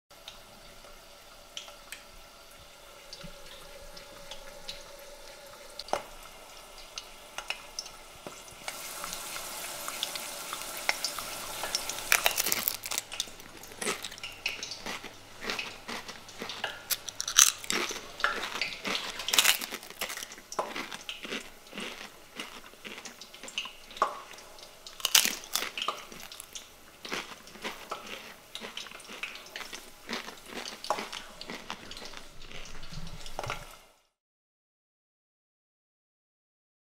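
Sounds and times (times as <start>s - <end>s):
potato slices frying in oil: 0.2s - 34.0s
chips crunching: 11.6s - 23.6s, 25.0s - 32.8s.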